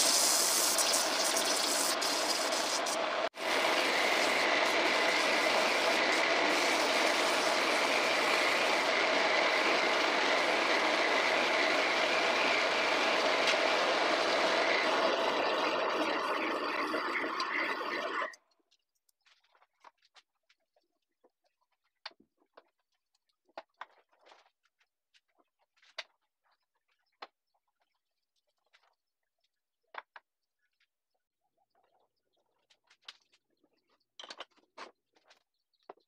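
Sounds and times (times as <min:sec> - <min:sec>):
chisel shaving wood on lathe: 0:00.0 - 0:18.3
lathe humming: 0:00.0 - 0:18.3.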